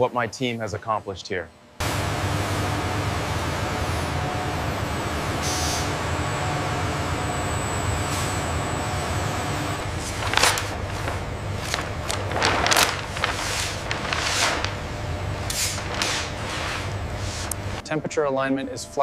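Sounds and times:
factory machinery hum: 0.0s - 19.0s
large sheet swishing and rustling: 10.0s - 14.9s, 15.5s - 17.5s.

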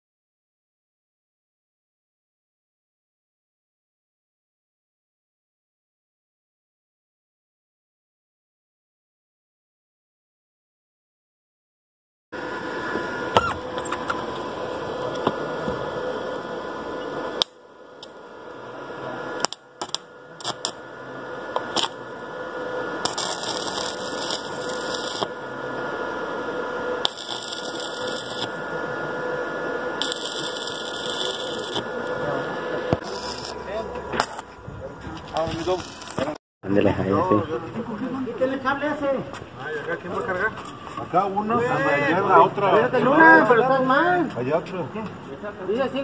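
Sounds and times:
arc welding crackle: 19.4s - 34.5s, 35.1s - 36.4s.

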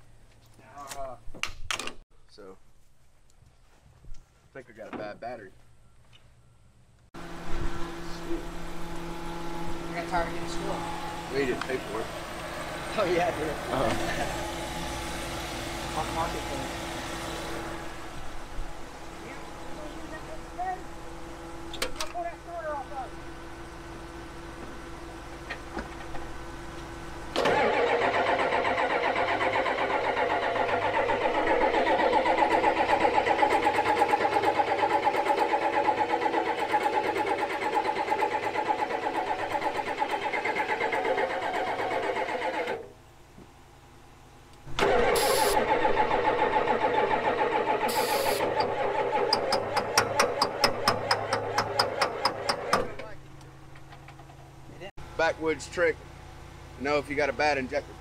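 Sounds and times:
engine cranking without firing: 27.2s - 43.0s, 44.6s - 54.6s
sharp engine knocks: 48.4s - 54.5s.

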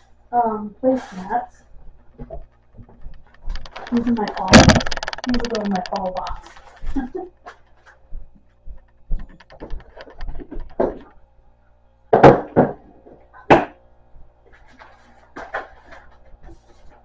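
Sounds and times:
packaging knocks and rustles: 2.9s - 6.8s
items thudding down: 3.5s - 6.5s.

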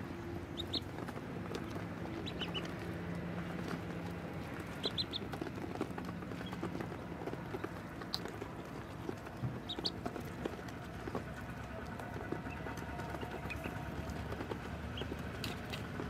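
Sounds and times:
bills pecking feed from a dish: 0.0s - 16.0s
ducklings peeping: 0.0s - 16.0s.

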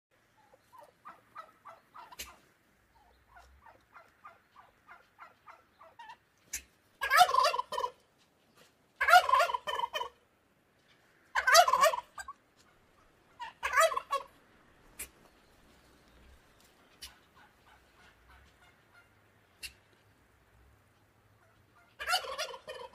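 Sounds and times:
turkey gobbling and calling: 0.2s - 10.2s, 10.9s - 22.9s.

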